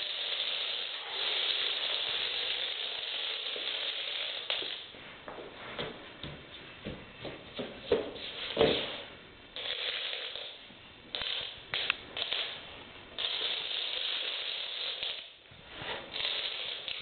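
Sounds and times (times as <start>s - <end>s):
dominoes clattering on wooden floor: 0.0s - 4.8s, 9.6s - 10.6s, 11.2s - 12.5s, 13.2s - 15.4s, 16.1s - 17.0s.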